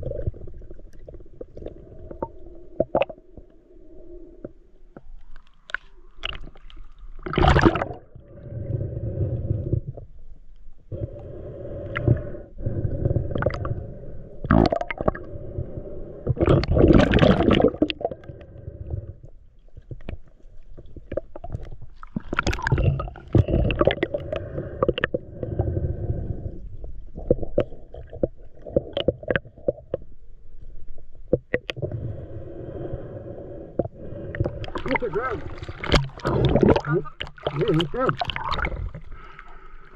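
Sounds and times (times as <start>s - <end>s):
muffled underwater rumbling: 0.0s - 5.2s, 5.8s - 39.9s
underwater knocks and scrapes: 34.3s - 39.2s.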